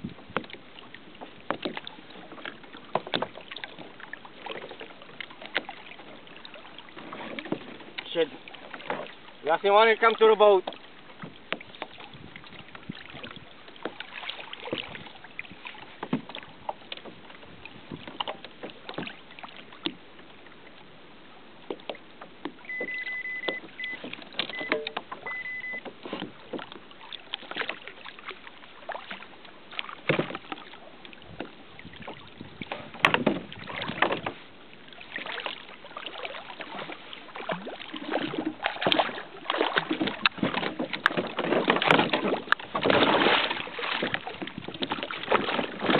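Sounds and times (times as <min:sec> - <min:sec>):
water splashing against a hull: 0:00.0 - 0:45.9
short high beeps: 0:22.7 - 0:25.9
short knocks and clicks: 0:22.7 - 0:26.4.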